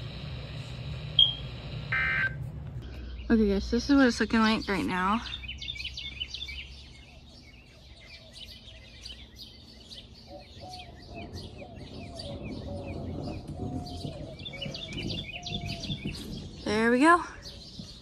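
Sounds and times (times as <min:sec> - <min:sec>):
small birds chirping: 0:02.8 - 0:18.0
low rumble: 0:10.8 - 0:18.0.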